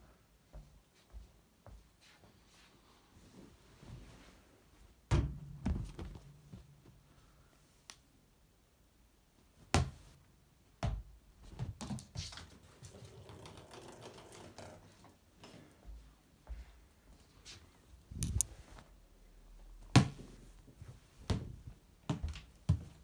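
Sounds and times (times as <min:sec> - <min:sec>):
plastic balls clicking on floor: 0:13.0 - 0:14.9.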